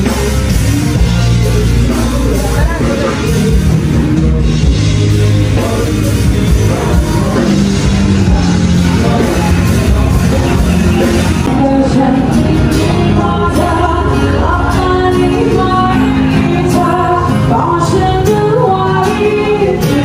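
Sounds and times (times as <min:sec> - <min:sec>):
loud rock music with singing: 0:00.0 - 0:20.0.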